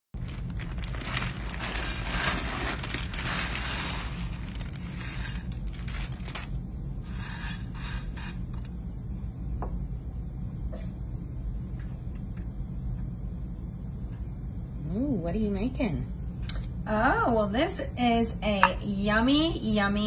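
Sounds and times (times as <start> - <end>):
plastic bag crinkling: 0.2 - 6.6
low hum: 0.2 - 20.0.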